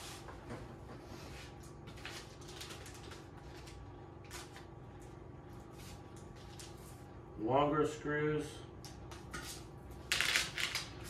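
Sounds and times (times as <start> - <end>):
packets rustling and clicking: 10.1 - 11.0.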